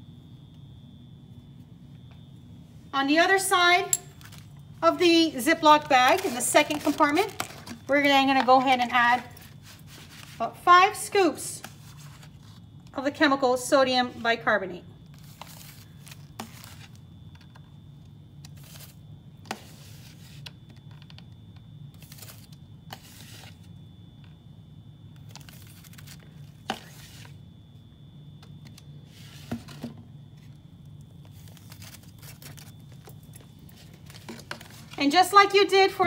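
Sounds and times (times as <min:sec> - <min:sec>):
steady low hum: 0:00.0 - 0:36.0
plastic bag crinkling: 0:05.7 - 0:10.4.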